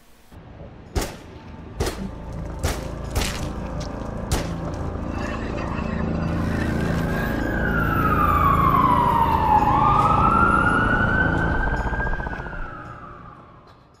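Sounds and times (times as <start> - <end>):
low rumble: 1.4 - 13.6
emergency siren wailing: 3.5 - 14.0.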